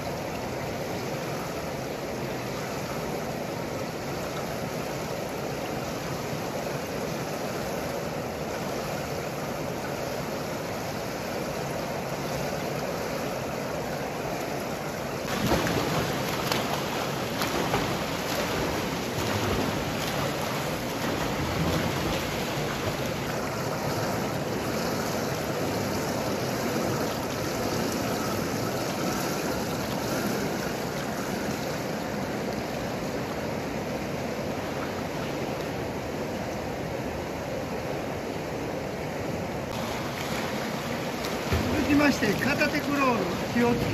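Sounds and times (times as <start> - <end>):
swimmers splashing in a pool: 15.2 - 31.8, 39.7 - 43.9.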